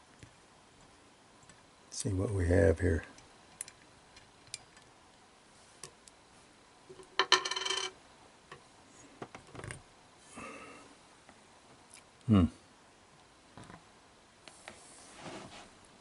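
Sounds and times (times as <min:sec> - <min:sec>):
small metal clicks: 0:03.2 - 0:04.9.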